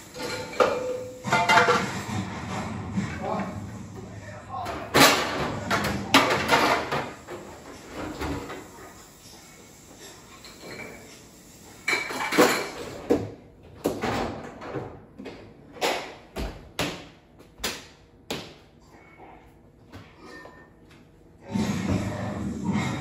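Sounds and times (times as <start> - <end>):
dishes and plastic cups clattering: 0.1 - 2.1, 4.8 - 8.5, 11.8 - 13.3.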